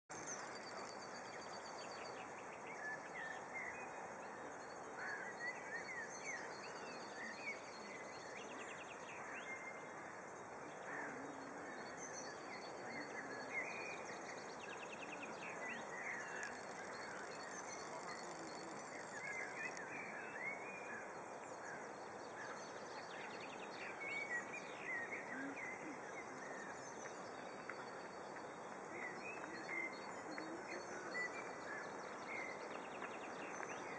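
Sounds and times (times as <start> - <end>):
steady background hiss: 0.2 - 33.9
birds chirping and singing: 10.7 - 33.9.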